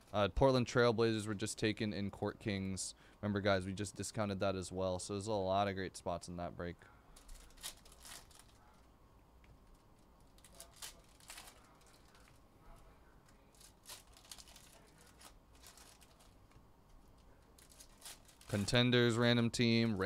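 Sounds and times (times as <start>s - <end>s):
foil wrappers tearing and crinkling: 7.2s - 8.7s, 10.3s - 12.4s, 13.3s - 16.4s, 17.5s - 18.8s.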